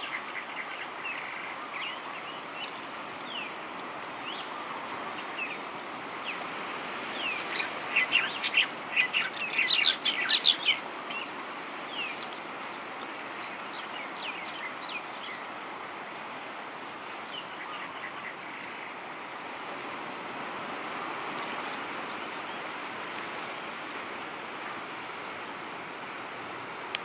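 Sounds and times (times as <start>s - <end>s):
surf washing: 0.0s - 27.0s
birds chirping: 7.1s - 15.5s.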